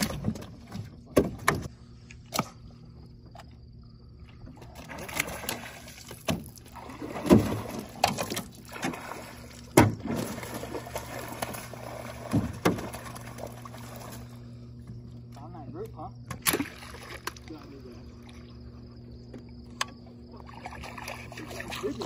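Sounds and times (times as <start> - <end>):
steady low hum: 0.0 - 22.0
fish thrashing and splashing: 4.4 - 14.5, 16.4 - 18.7, 20.2 - 22.0.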